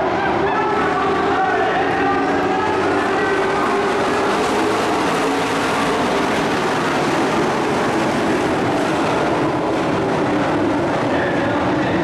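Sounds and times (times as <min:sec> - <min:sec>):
race truck engines droning: 0:00.0 - 0:12.0.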